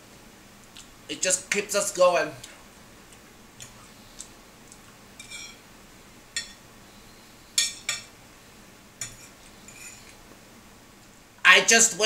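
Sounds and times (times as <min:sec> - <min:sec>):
knife and fork clinking on plate: 0:05.2 - 0:05.6, 0:09.0 - 0:10.2.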